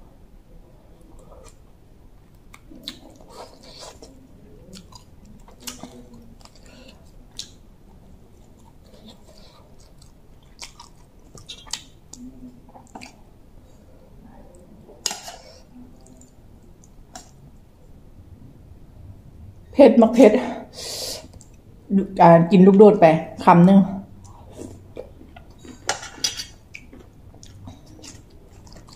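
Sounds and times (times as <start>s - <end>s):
person chewing: 1.0s - 1.6s, 2.5s - 13.8s, 15.0s - 17.4s, 24.2s - 28.9s.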